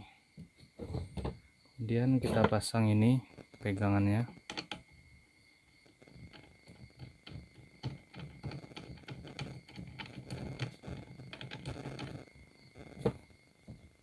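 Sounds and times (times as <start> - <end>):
handle threads clicking and rattling: 3.6 - 5.0, 5.8 - 14.0.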